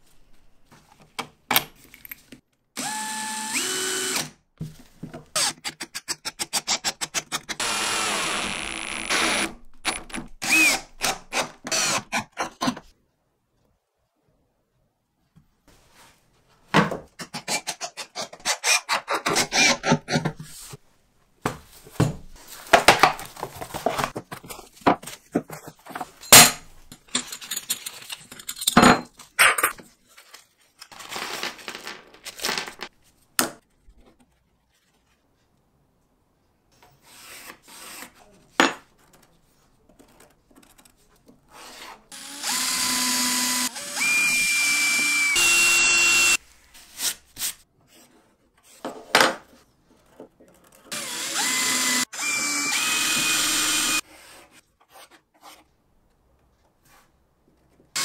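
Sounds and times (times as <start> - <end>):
power drill boring wood: 2.8 - 4.3, 7.6 - 9.5, 10.4 - 12.1, 42.2 - 46.4, 50.9 - 54.0.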